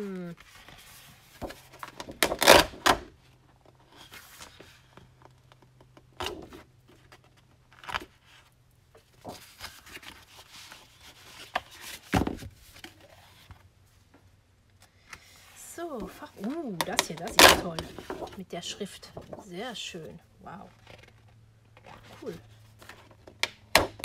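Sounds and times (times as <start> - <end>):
paper sheets rustling: 6.4 - 13.6, 16.0 - 19.6.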